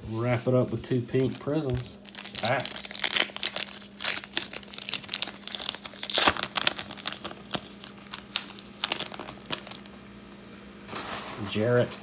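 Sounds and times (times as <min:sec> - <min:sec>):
foil wrapper crinkling and tearing: 0:01.1 - 0:10.0.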